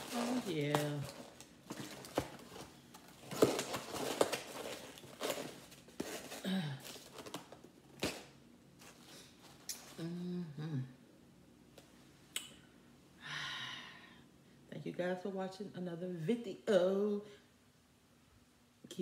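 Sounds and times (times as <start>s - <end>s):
paper crinkling and rustling: 0.0s - 9.6s.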